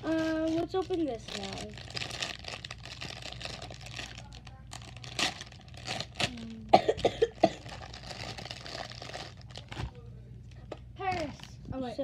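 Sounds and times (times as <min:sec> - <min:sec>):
plastic packaging crinkling: 0:00.0 - 0:06.7, 0:07.3 - 0:10.1.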